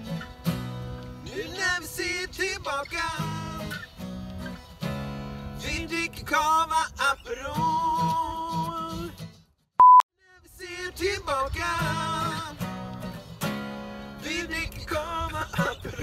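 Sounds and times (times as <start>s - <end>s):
acoustic guitars strummed: 0.0s - 9.6s, 10.6s - 16.0s
man singing: 1.2s - 3.8s, 5.6s - 9.2s, 10.2s - 12.7s, 14.2s - 16.0s
short electronic beep: 9.8s - 10.0s.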